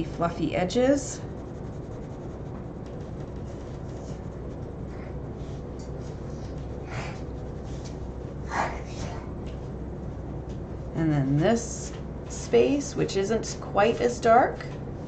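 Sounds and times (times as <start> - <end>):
low background hum: 0.0 - 15.0
pencil scratching on paper: 0.6 - 5.2.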